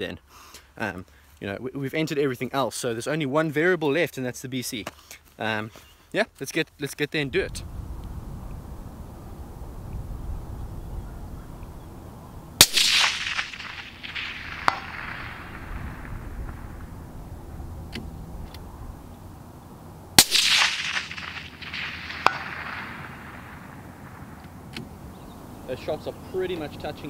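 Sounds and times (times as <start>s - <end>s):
rolling echo: 7.2s - 27.0s
suppressed rifle shots: 12.6s - 19.2s, 20.2s - 25.0s.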